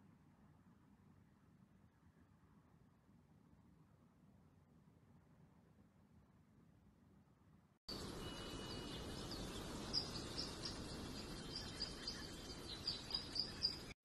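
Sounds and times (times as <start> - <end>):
steady rushing noise: 7.9 - 13.9
thin high steady tone: 7.9 - 14.0.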